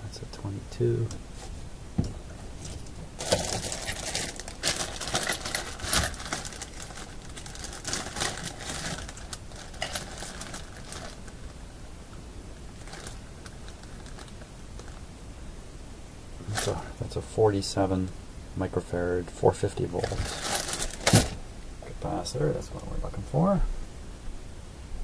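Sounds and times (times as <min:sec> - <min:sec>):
electronic parts rattling: 0:02.6 - 0:11.4.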